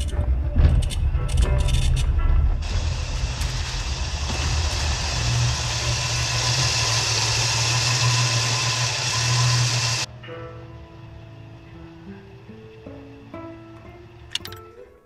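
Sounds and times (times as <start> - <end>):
car engine idling: 2.6 - 10.1.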